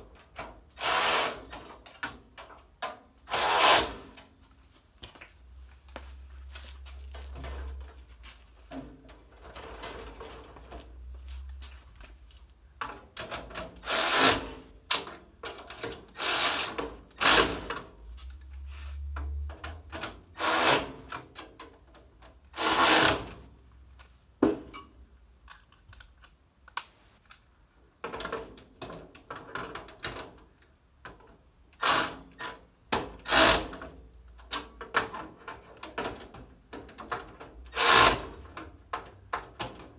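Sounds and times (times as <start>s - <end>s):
cordless drill bursts: 0.8s - 1.5s, 3.3s - 4.0s, 22.6s - 23.2s.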